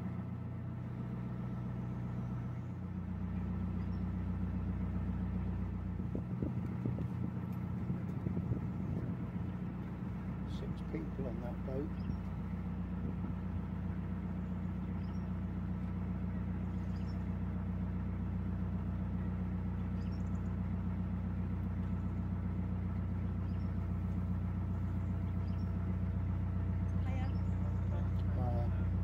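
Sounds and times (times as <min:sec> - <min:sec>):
diesel engine humming at low revs: 0:00.0 - 0:29.0.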